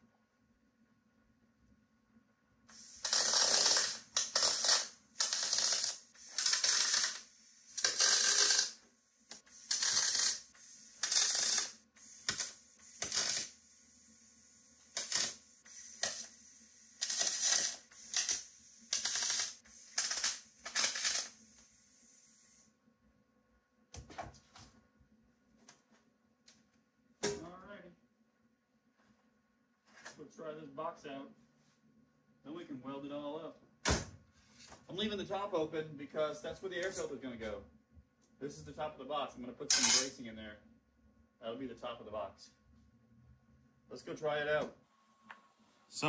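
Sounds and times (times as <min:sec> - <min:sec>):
crackling welding arc bursts: 0:02.7 - 0:22.7, 0:39.7 - 0:40.2.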